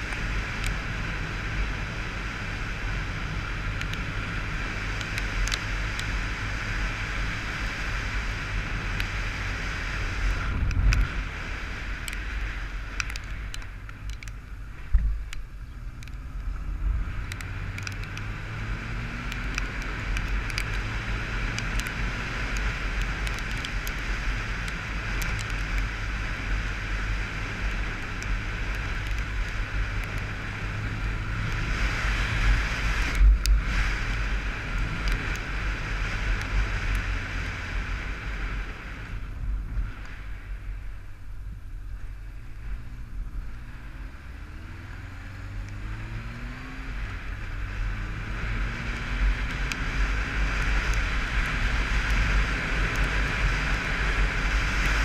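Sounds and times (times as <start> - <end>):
wind rushing over helmet: 8.4 - 12.8.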